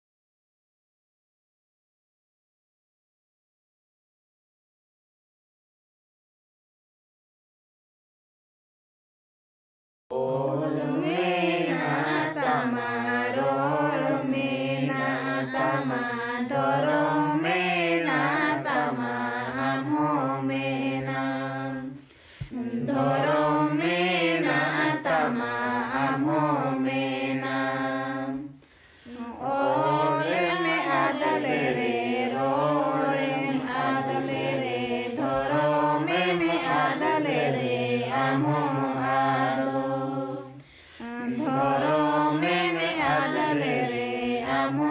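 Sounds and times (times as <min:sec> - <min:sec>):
men and women singing together: 0:10.1 - 0:44.9.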